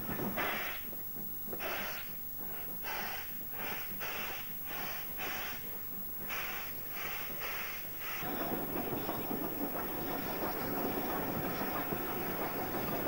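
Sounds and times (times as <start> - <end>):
steam locomotive exhaust chuffing: 0.0 - 13.0.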